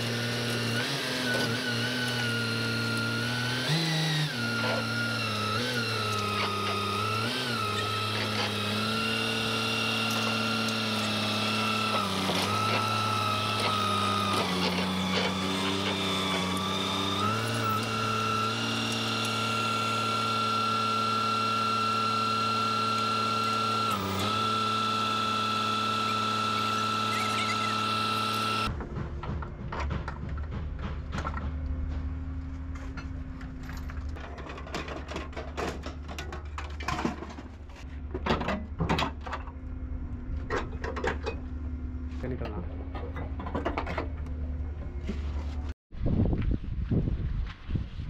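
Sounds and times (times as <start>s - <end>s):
power tool motor whining: 0.0s - 28.7s.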